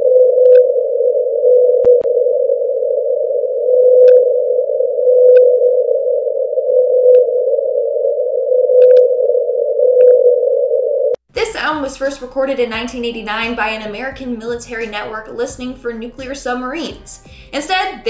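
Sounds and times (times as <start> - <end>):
whale calling underwater: 0.1 - 11.1.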